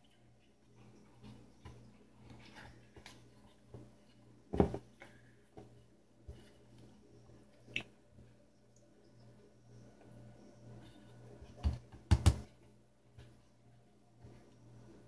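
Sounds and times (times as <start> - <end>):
dough pressed by hand: 11.5 - 12.5.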